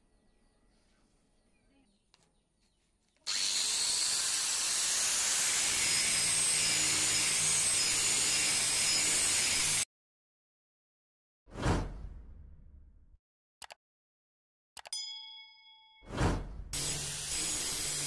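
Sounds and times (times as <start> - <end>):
angle grinder grinding steel: 3.3 - 9.8.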